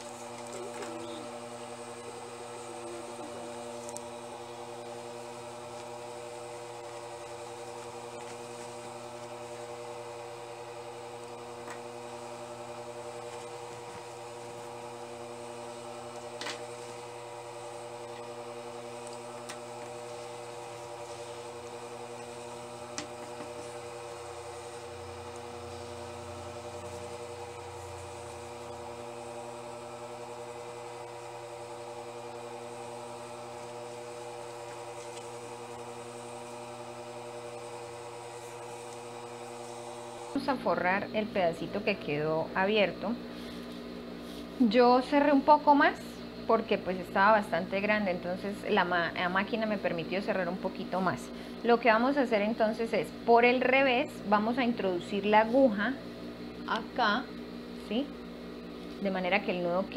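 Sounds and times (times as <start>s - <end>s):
sewing machine motor humming: 0.0s - 42.7s.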